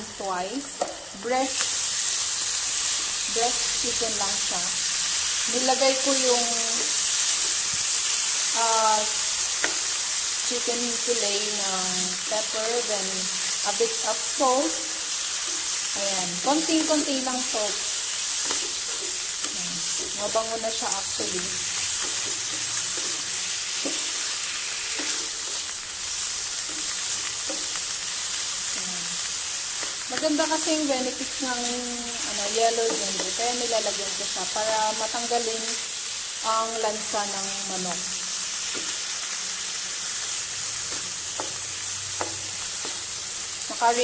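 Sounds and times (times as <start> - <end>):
chicken sizzling in a pan: 0.0 - 44.0
wooden spatula stirring: 17.9 - 25.8
wooden spatula tapping pan: 32.8 - 33.4, 40.9 - 41.6, 42.2 - 43.1.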